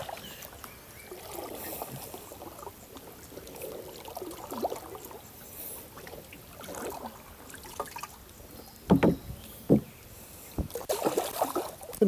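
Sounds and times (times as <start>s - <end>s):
water trickling and sloshing: 0.0s - 12.0s
light knocks on boat: 8.8s - 10.8s.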